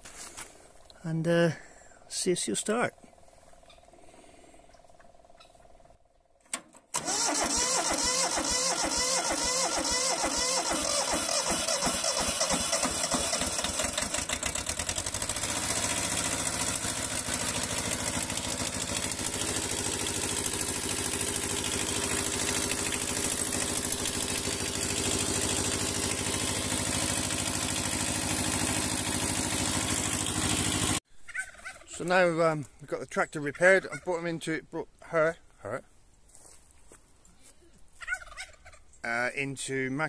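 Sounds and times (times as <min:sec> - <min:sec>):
diesel tractor engine idling: 0:07.0 - 0:31.0.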